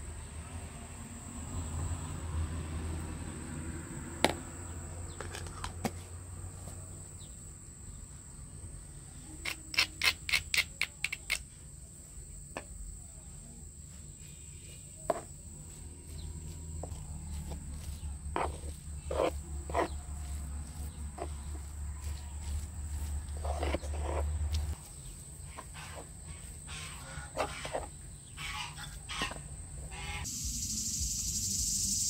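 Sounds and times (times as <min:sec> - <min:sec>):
high-pitched insect chirring: 0:30.0 - 0:32.0.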